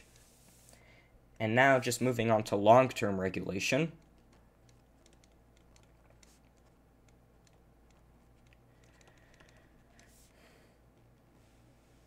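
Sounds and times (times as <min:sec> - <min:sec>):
low steady hum: 0:00.0 - 0:12.0
stylus tapping drawing tablet: 0:04.0 - 0:10.3.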